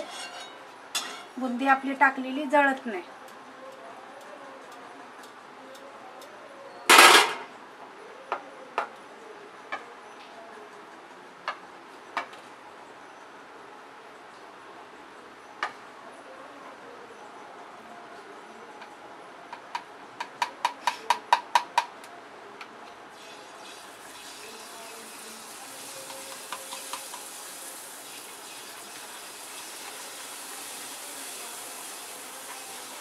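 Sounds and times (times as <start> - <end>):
batter sizzling in hot oil: 23.1 - 33.0.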